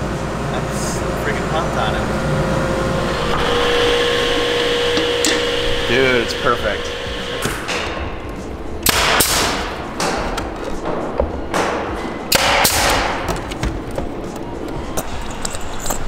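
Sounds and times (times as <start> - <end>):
nail gun firing: 8.8 - 10.3, 12.3 - 13.3.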